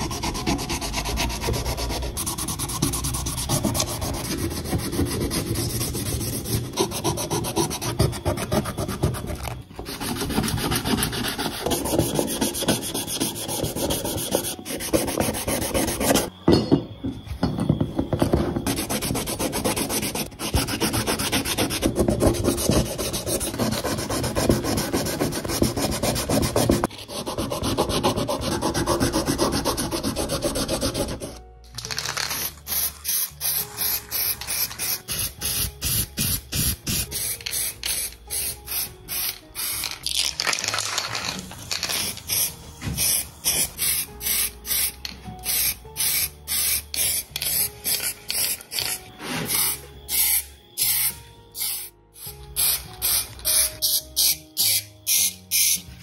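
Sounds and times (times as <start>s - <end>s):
cloth sanding metal: 0.0s - 9.2s, 9.8s - 16.3s, 18.7s - 31.3s
aerosol spray can hissing: 32.4s - 39.9s, 41.9s - 48.6s, 52.6s - 55.8s.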